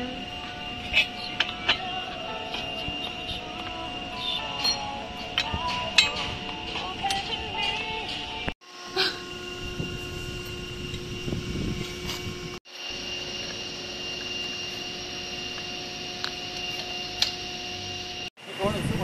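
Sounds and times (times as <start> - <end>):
steady mechanical hum: 0.0 - 19.0
metallic clink: 4.2 - 8.3.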